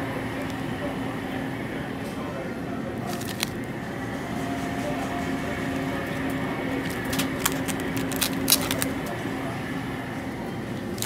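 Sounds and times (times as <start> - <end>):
refrigerated display case hum: 0.0 - 11.0
plastic-wrapped trays crinkling: 3.1 - 3.6, 6.8 - 9.0.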